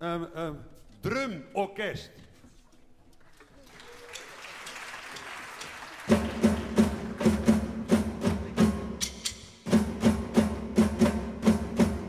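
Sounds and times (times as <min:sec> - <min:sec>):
electronic drum beat: 0:06.1 - 0:12.0.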